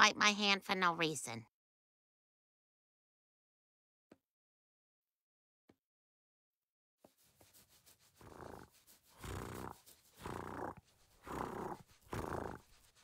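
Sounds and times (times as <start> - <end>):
dog purring rumble: 8.2 - 13.0.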